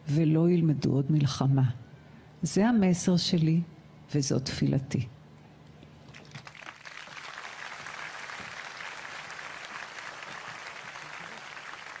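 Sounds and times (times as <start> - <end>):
large audience applauding: 6.1 - 12.0.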